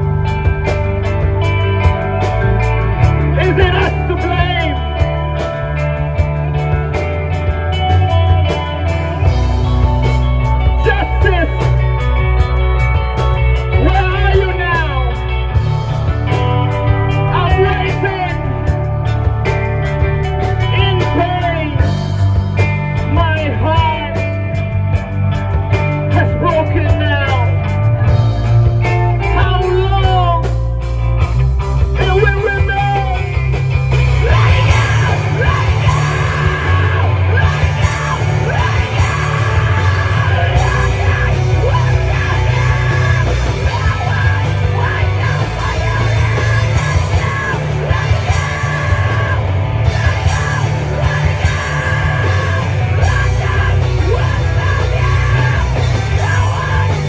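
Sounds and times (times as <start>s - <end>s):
yelled vocals: 0.0s - 31.0s, 31.6s - 57.0s
bending guitar notes: 0.0s - 57.0s
live punk band playing: 0.0s - 57.0s.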